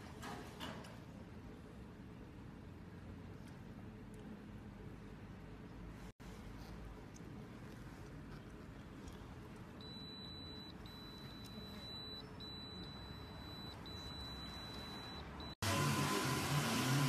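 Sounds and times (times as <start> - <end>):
ticket machine long beeps: 9.8 - 15.6.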